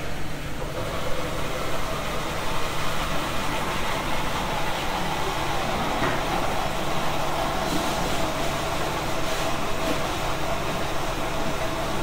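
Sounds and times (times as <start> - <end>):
cafe machinery humming: 0.0 - 12.0.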